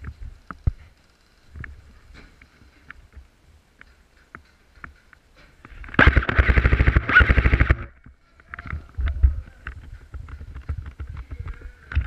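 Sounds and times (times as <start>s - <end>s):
airsoft rifle full-auto burst: 6.0s - 7.9s.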